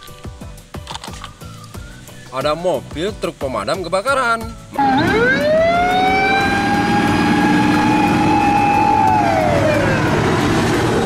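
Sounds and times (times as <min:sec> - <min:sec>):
fire engine siren wailing: 0:04.8 - 0:11.0.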